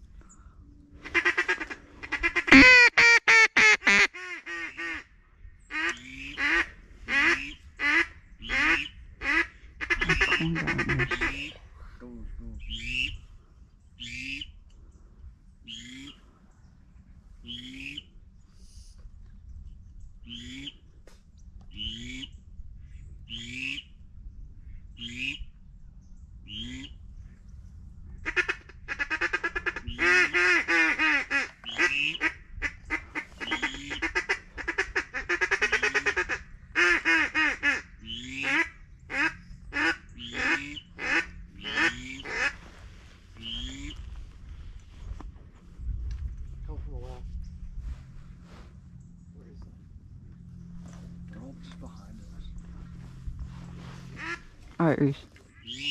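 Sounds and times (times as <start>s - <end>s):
ducks quacking: 1.0s - 5.1s, 5.7s - 11.6s, 28.2s - 42.8s, 43.4s - 44.2s, 54.0s - 54.6s.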